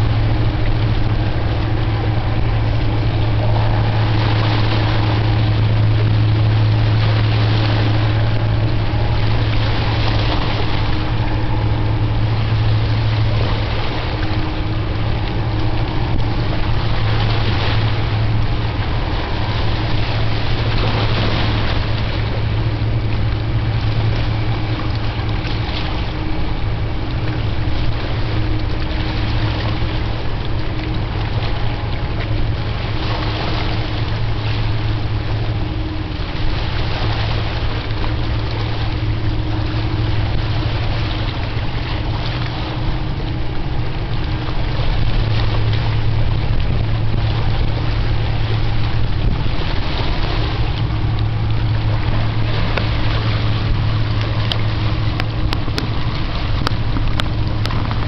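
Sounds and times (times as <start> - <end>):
motorboat engine drone: 0.0 - 58.0
rushing water: 0.0 - 58.0
wind noise: 0.0 - 58.0.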